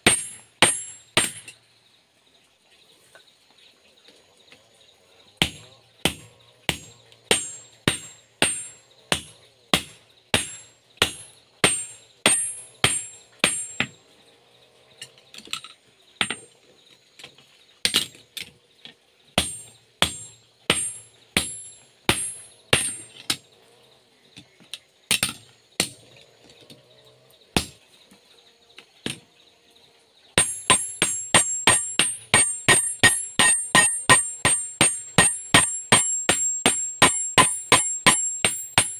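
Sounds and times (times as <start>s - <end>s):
hammer striking hot steel: 0.0s - 1.6s, 5.4s - 14.0s, 19.4s - 23.1s, 30.4s - 38.9s.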